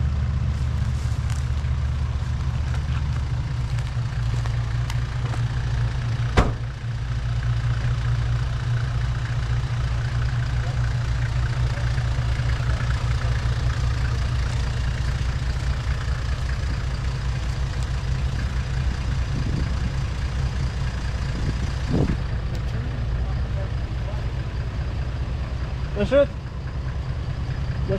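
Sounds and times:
car engine idling: 0.0 - 27.9
sharp knock: 6.4 - 6.7.

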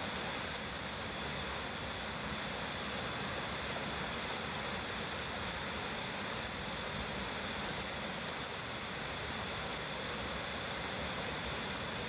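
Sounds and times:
small waterfall rushing: 0.0 - 12.0.

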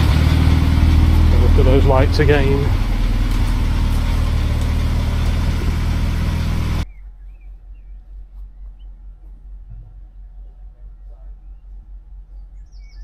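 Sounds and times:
car engine running: 0.0 - 13.0
faint bird chirps: 6.8 - 13.0.

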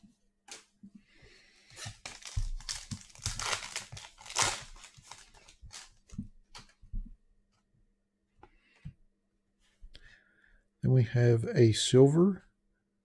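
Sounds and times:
plastic wrapper crinkling: 1.8 - 6.8.

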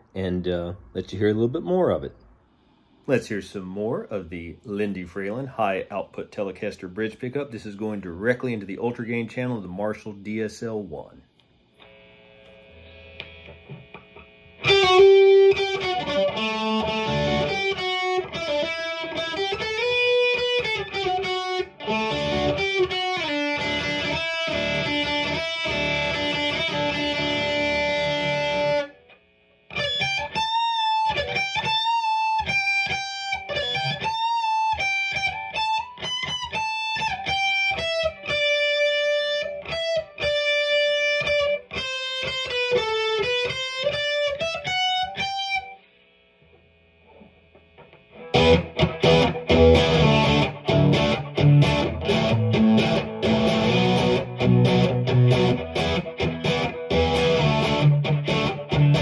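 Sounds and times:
faint amp noise: 0.0 - 59.0
distorted electric guitar lead: 11.8 - 45.9, 47.0 - 59.0.

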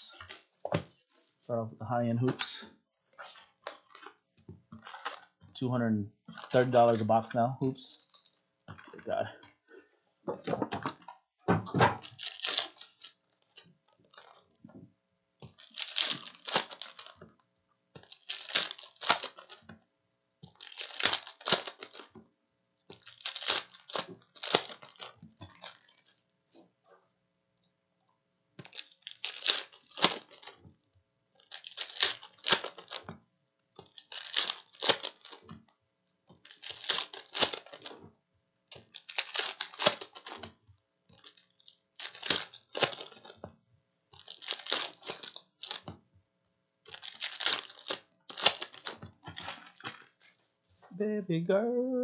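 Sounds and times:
foil packs crinkling: 4.8 - 5.4, 6.3 - 9.7, 11.9 - 14.6, 15.4 - 17.2, 18.0 - 19.7, 20.5 - 22.2, 22.9 - 26.2, 28.6 - 30.6, 31.4 - 33.1, 33.8 - 35.5, 36.4 - 38.0, 38.7 - 43.5, 44.1 - 45.9, 46.9 - 50.4.

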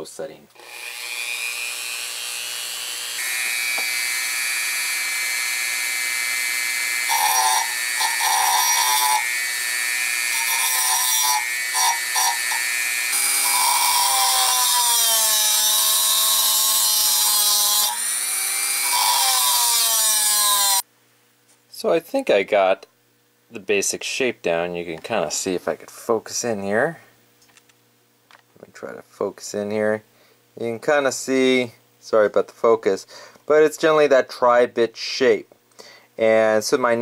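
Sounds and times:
cut-off wheel grinding metal: 0.6 - 20.8
rotary tool motor whine: 0.6 - 20.8.

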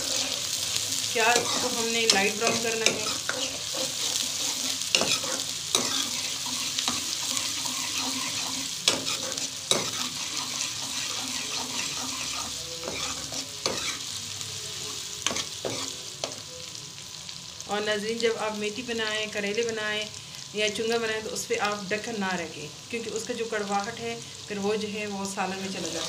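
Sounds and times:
onions sizzling in hot oil: 0.0 - 26.0
ladle scraping pan: 2.4 - 14.0.

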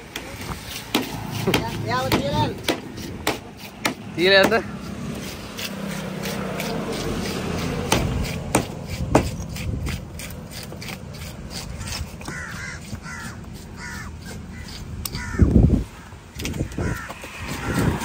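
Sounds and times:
knife chopping on wooden block: 0.1 - 13.1
crow cawing: 11.8 - 18.0.

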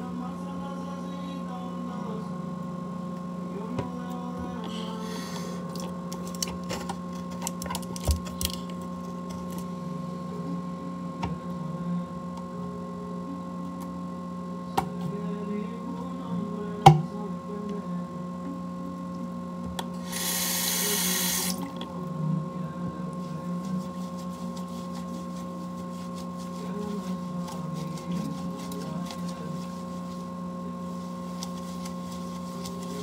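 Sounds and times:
steady hum: 0.0 - 33.0
sink tap running: 20.1 - 21.8
wet squelching sponge: 23.7 - 30.3, 30.9 - 33.0.

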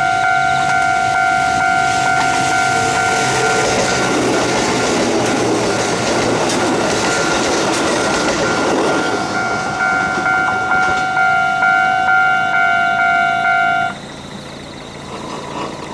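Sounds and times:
level crossing bell ringing: 0.0 - 6.0, 7.0 - 14.0
electric train passing: 0.0 - 15.9.

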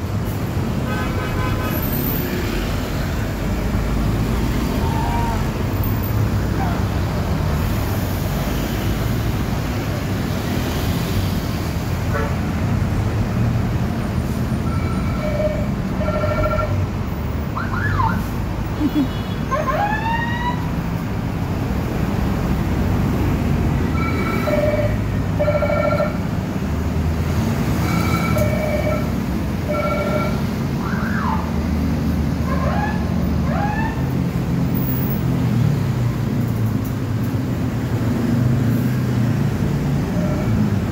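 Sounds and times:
multi-tone bus horns: 0.7 - 2.0, 14.6 - 16.8, 24.0 - 26.2.

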